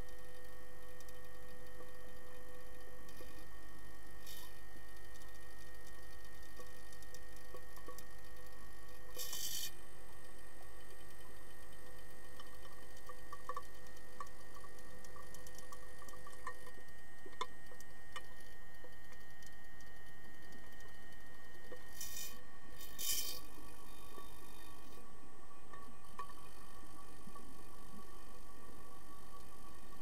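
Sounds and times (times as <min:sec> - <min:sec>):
underwater clicks and ticks: 0:00.0 - 0:25.0, 0:25.7 - 0:30.0
steady underwater hum: 0:00.0 - 0:30.0.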